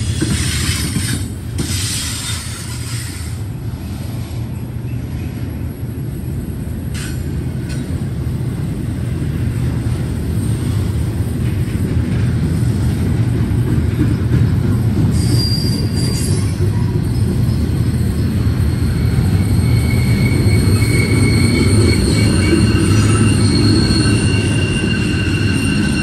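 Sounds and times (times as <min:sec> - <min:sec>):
train wheels rumbling on rail: 0:00.0 - 0:26.0
high wheel squeal: 0:15.1 - 0:26.0.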